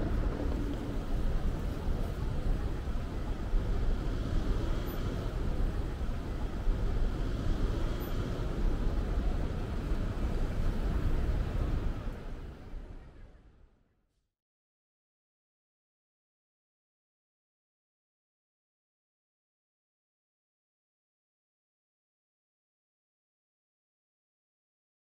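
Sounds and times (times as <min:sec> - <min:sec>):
city traffic driving past: 0:00.0 - 0:12.8.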